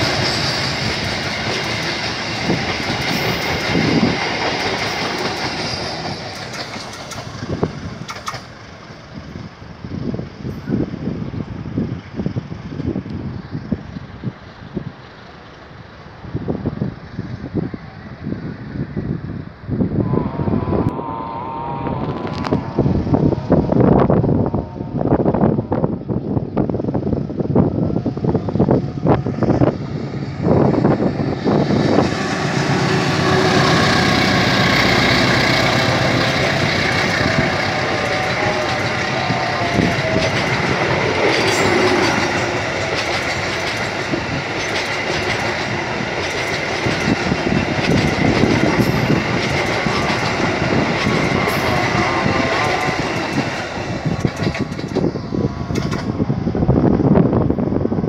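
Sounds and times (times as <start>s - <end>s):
wheels clicking over rail joints: 0.0s - 9.0s, 36.6s - 56.2s
diesel locomotive passing: 0.0s - 58.0s.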